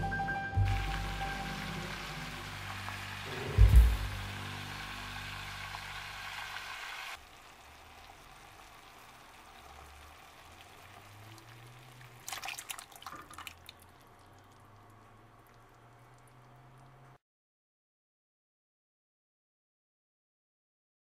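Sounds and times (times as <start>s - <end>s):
food sizzling in a pot: 0.6s - 13.6s.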